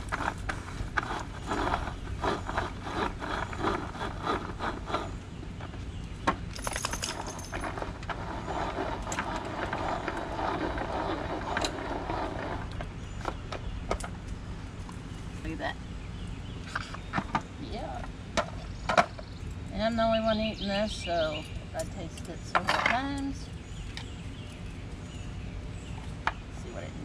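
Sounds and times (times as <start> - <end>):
manual food processor chopping: 0.0 - 5.2.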